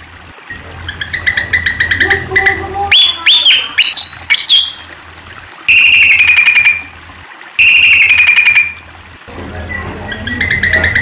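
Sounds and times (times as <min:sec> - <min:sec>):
bird singing: 0:00.5 - 0:04.9, 0:05.7 - 0:06.9, 0:07.6 - 0:08.8, 0:09.6 - 0:11.0.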